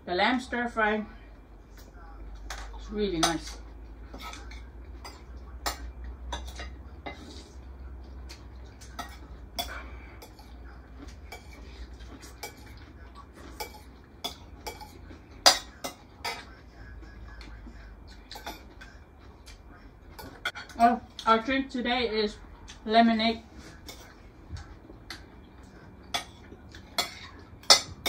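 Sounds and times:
forks and spoons clinking on plates: 2.4s - 7.5s, 8.3s - 19.0s, 20.1s - 20.9s, 23.8s - 28.0s.

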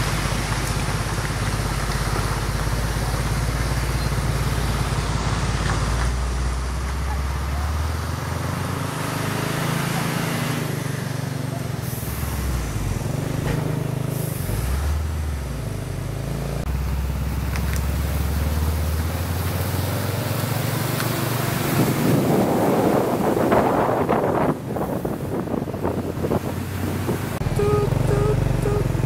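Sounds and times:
truck diesel engine running: 0.0s - 29.0s
wind buffeting microphone: 21.5s - 29.0s.

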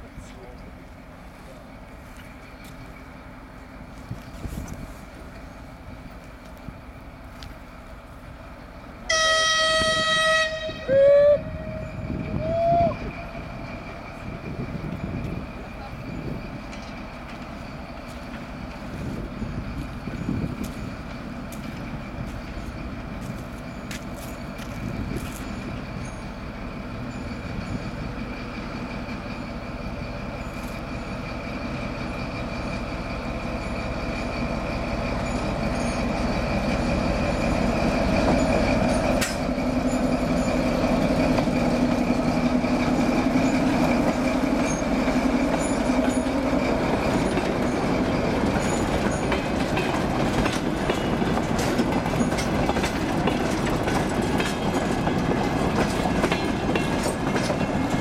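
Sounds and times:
diesel locomotive engine running: 0.0s - 58.0s
wheels clicking over rail joints: 35.2s - 58.0s.

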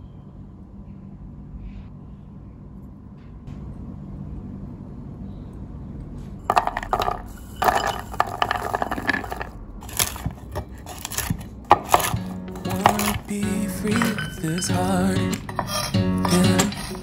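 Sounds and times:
faint low hum: 0.0s - 11.7s
walnuts tumbling onto wooden board: 6.5s - 13.3s
knife chopping nuts on board: 9.9s - 14.4s.

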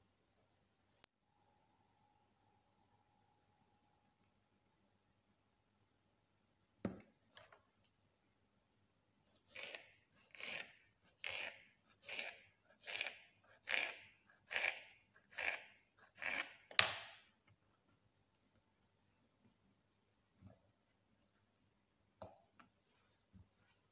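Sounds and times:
knife cutting sausages: 9.3s - 17.3s.

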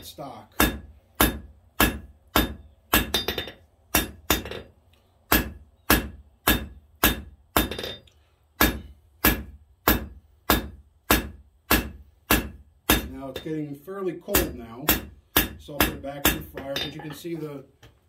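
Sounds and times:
hammer striking steel on anvil: 0.0s - 4.7s, 5.3s - 13.6s, 14.3s - 17.4s.

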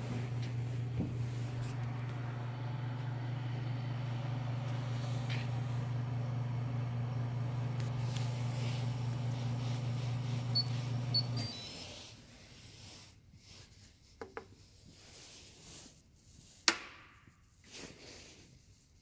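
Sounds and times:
machine hum: 0.0s - 11.7s
brief tones: 10.5s - 12.0s.

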